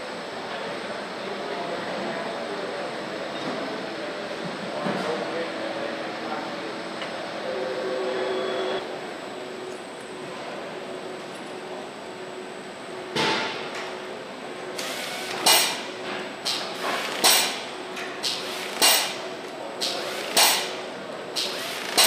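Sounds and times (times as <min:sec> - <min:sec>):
machinery hum: 0:00.0 - 0:22.0
nut runner metallic bursts: 0:21.4 - 0:22.0.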